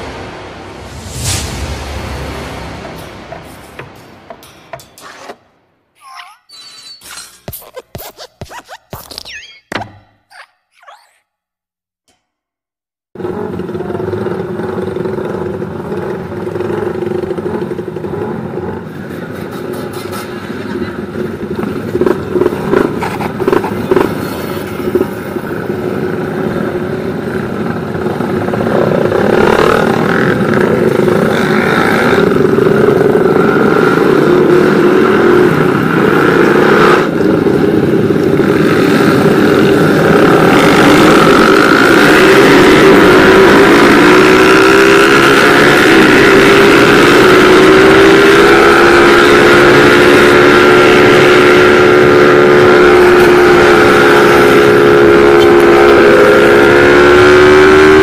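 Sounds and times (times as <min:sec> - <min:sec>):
road and wind noise: 0:00.0 - 0:05.6, 0:13.2 - 0:58.0
motorcycle engines: 0:13.2 - 0:58.0.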